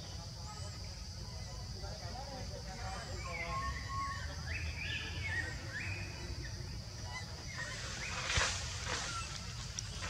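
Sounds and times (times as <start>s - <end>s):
brief rustle: 7.7s - 10.0s.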